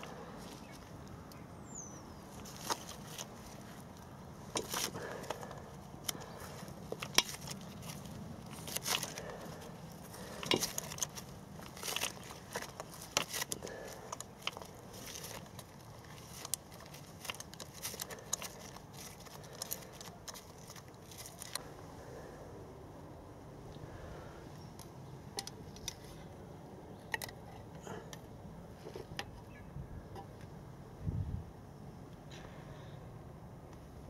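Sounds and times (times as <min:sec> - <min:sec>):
work glove rustling: 0:02.2 - 0:21.8.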